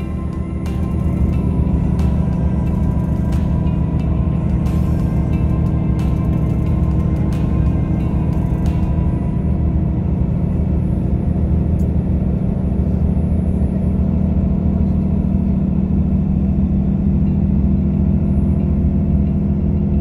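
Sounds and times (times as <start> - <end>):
bus engine and tyres droning: 0.0 - 20.0.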